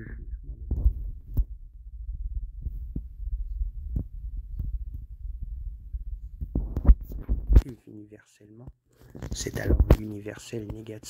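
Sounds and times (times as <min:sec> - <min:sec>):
low rumble: 0:00.0 - 0:07.6
faint steady hum: 0:00.0 - 0:11.0.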